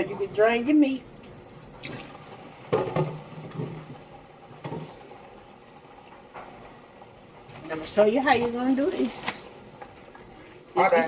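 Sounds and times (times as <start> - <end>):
steady kitchen hiss: 0.0 - 11.0
cookware knocking and clattering: 2.7 - 3.8.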